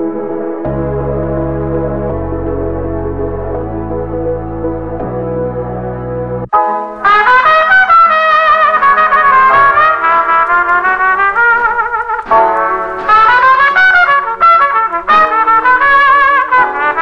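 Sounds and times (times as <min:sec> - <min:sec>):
trumpet-led brass melody: 0:06.5 - 0:17.0.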